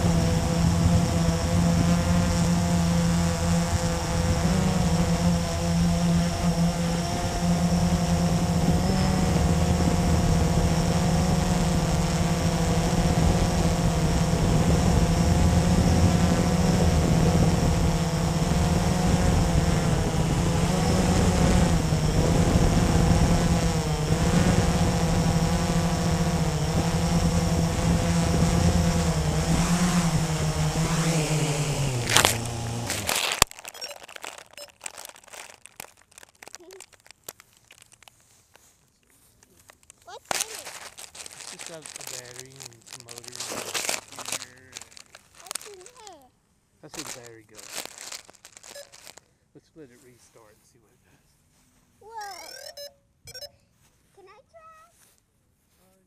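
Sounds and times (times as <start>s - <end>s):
quadcopter propellers whirring: 0.0s - 34.8s, 40.0s - 46.2s, 46.9s - 49.2s, 52.1s - 53.5s.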